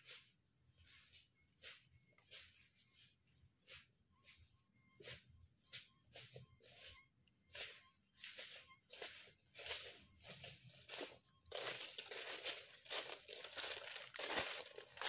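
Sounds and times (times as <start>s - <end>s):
footsteps crunching dry leaves: 7.5s - 15.0s.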